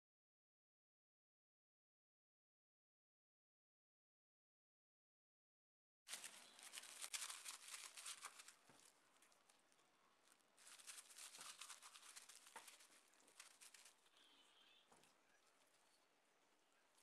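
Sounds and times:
gloved hands handling raw chicken: 6.1 - 15.9.

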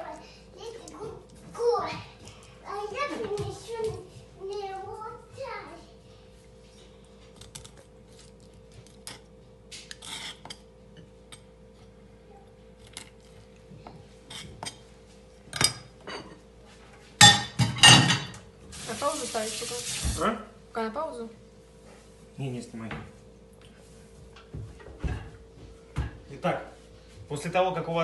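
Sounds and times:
dishes clattering in steel sink: 17.2 - 18.4
kitchen tap running: 18.6 - 20.3.

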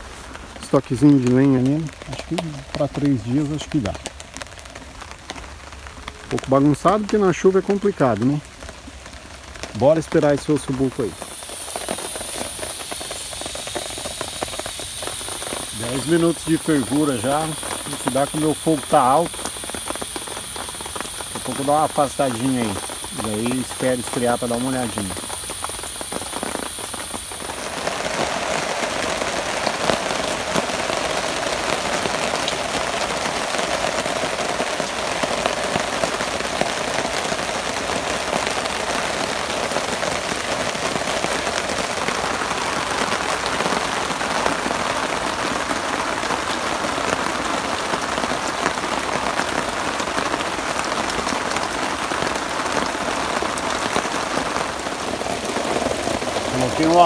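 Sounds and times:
heavy rain on tarps and foliage: 0.0 - 57.0
pressure cooker hissing: 11.0 - 27.8.

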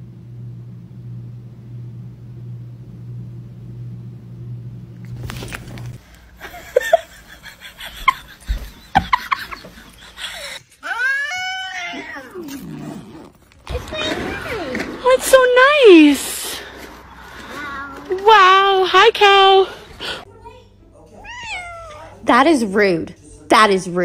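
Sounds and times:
low steady hum: 0.0 - 10.8
cat meowing loudly: 10.8 - 12.6, 21.2 - 22.2
voices: 13.5 - 24.0.

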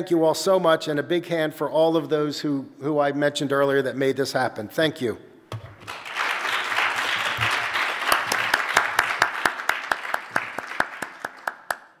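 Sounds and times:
sharp regular claps: 5.5 - 12.0
audience applause: 5.8 - 12.0.

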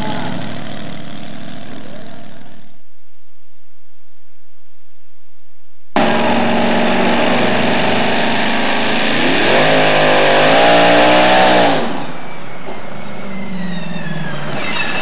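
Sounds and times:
truck engine under load: 0.0 - 2.7, 6.0 - 15.0
falling whine: 5.9 - 15.0.

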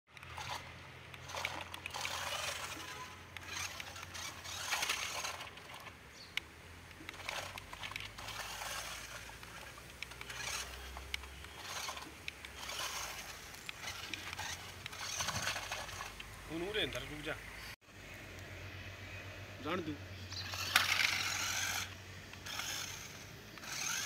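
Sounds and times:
scattered clicks: 0.1 - 17.1
toy truck tyres crunching on dirt: 0.1 - 18.5, 19.8 - 24.0
electric drive motors: 0.1 - 24.0.

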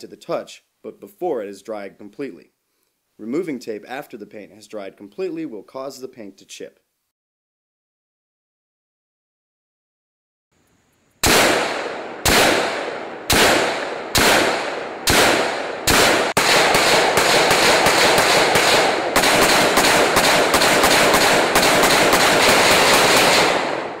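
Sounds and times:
rapid rifle fire: 11.2 - 24.0
rifle single shots echoing: 11.2 - 24.0.

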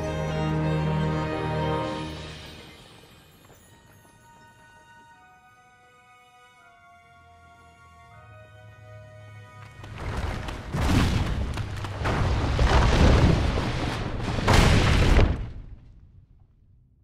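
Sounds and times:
rockfall rumbling and crashing: 9.8 - 16.1.

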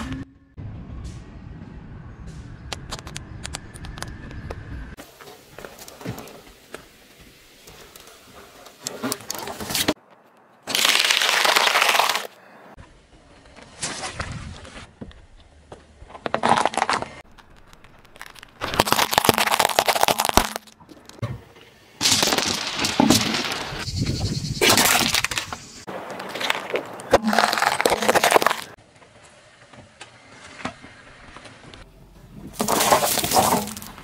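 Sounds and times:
tyre crushing objects on asphalt: 10.7 - 12.3, 16.1 - 20.8, 22.0 - 23.8, 24.6 - 28.8, 32.5 - 34.0
glass marbles grinding and breaking: 16.6 - 21.2, 26.3 - 28.8, 32.6 - 34.0.

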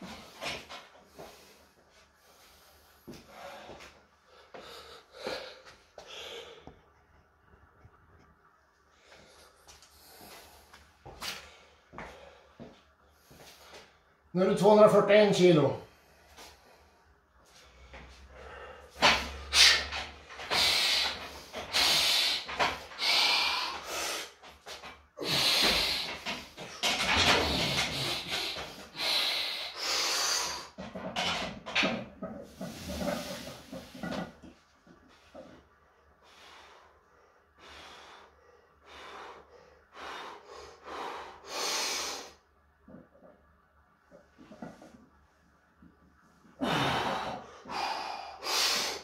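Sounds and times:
hissing snorting breaths: 17.8 - 24.4, 25.2 - 30.8, 46.6 - 49.0.

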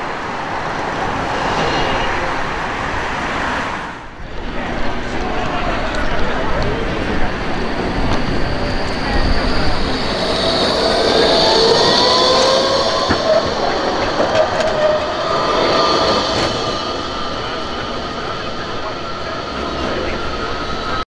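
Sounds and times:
tram passing: 0.0 - 21.0
whine rising in pitch: 4.3 - 21.0.

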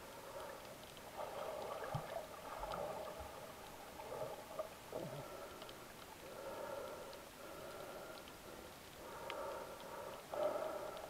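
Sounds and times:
underwater swishing and gurgling: 0.0 - 11.0
faint clicks: 0.2 - 11.0.

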